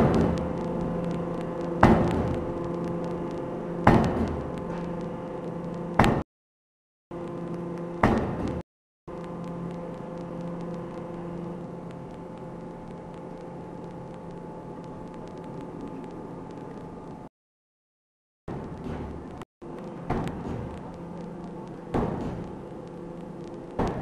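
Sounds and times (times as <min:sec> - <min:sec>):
steady machine hum: 0:00.0 - 0:06.2, 0:07.1 - 0:17.3, 0:18.5 - 0:24.0
forging hammer heavy blows: 0:03.8 - 0:04.8.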